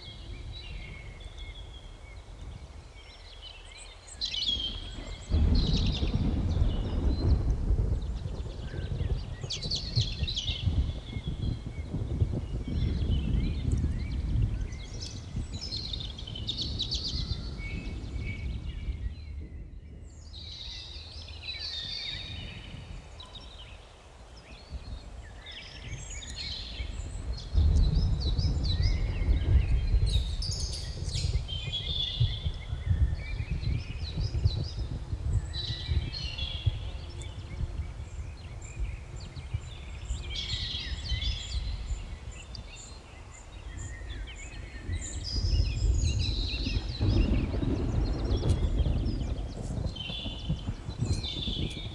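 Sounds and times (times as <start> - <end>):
birds chirping and singing: 0.0 - 51.9
low rumble: 25.9 - 42.3.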